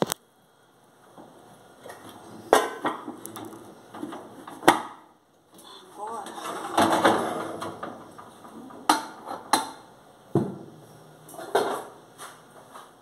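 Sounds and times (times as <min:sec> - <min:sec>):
metal pots clanking: 0:06.2 - 0:09.9.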